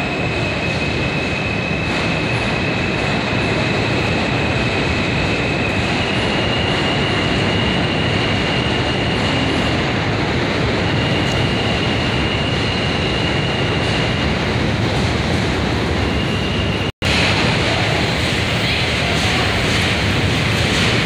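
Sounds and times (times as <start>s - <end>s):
subway train rumble: 0.0s - 21.0s
high wheel squeal: 10.7s - 14.4s, 16.1s - 16.9s.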